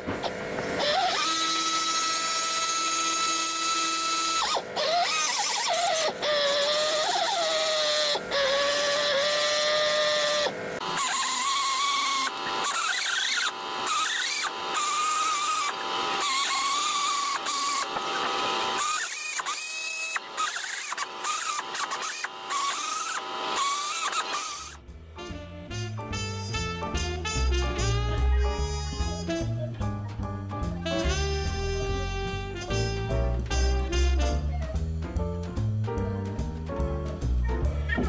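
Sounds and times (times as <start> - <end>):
air tool whining: 0.0 - 24.9.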